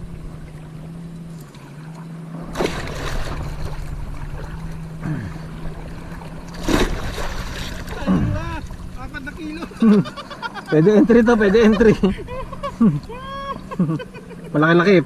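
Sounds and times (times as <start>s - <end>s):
water splashing and sloshing: 0.0s - 14.5s
steady low hum: 0.0s - 15.0s
loud fish splash: 2.4s - 9.0s.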